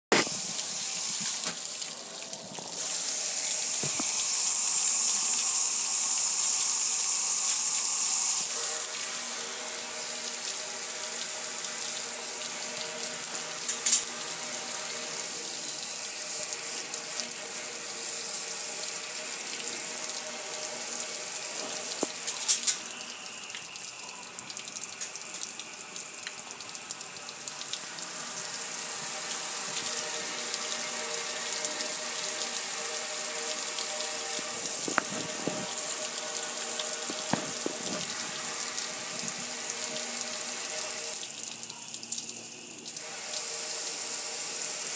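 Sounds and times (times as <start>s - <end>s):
water spraying on metal grill: 2.7s - 23.0s, 28.5s - 40.9s.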